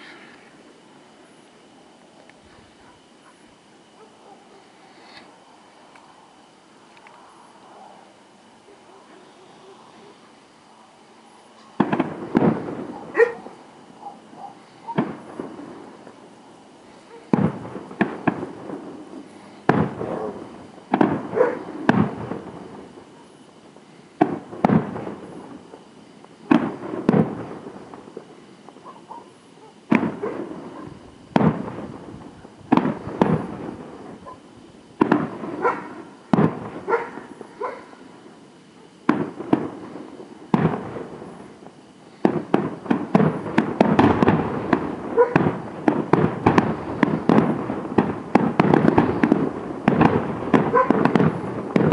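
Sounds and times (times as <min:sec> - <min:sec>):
fireworks bursting with echo: 0:11.6 - 0:51.9.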